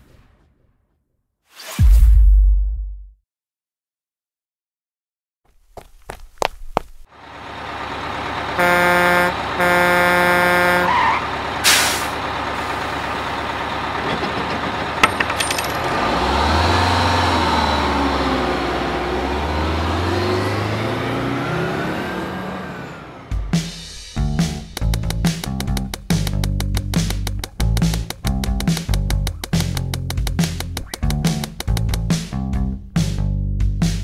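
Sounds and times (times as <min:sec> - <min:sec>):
street traffic noise: 0:05.8 - 0:32.2
bus engine pulling away: 0:07.1 - 0:15.0, 0:15.7 - 0:33.9
bus horn blasts: 0:08.5 - 0:12.0
air brake hiss: 0:11.6 - 0:12.2.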